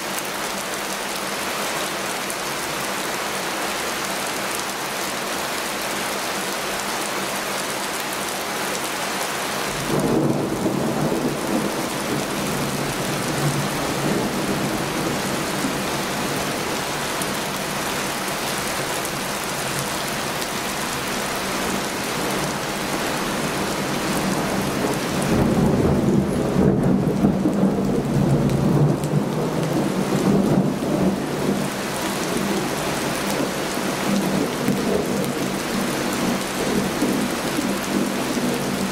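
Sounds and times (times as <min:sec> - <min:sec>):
heavy rain falling: 0:00.0 - 0:38.9
thunder rumbling: 0:09.8 - 0:38.9.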